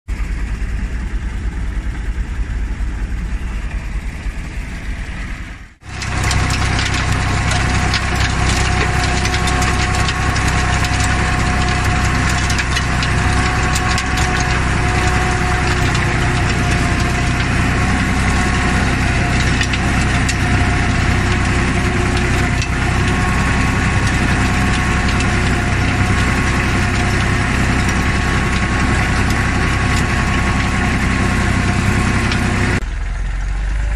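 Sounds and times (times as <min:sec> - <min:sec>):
rotary tiller rumbling in soil: 0:05.8 - 0:32.8
clods and stones ticking: 0:05.9 - 0:32.6.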